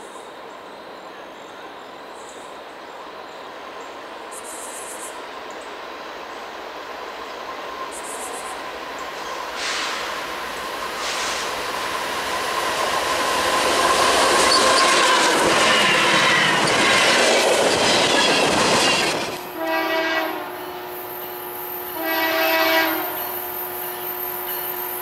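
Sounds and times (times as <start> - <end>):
freight train rumbling: 0.0 - 25.0
rail squeal: 7.2 - 25.0
distant locomotive horn blasts: 19.4 - 25.0.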